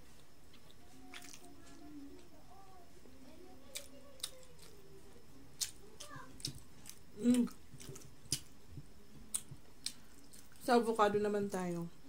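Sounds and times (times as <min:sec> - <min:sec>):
person chewing: 0:00.0 - 0:02.3, 0:03.7 - 0:04.8, 0:05.5 - 0:10.6.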